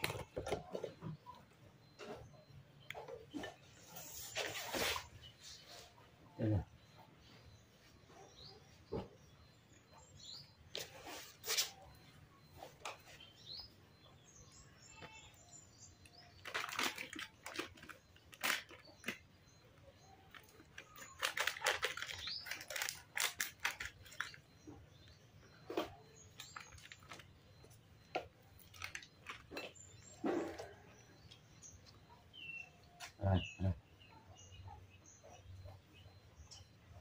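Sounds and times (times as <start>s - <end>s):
foil packet crinkling: 16.4s - 19.2s, 20.3s - 24.4s, 26.4s - 27.3s, 28.6s - 29.6s.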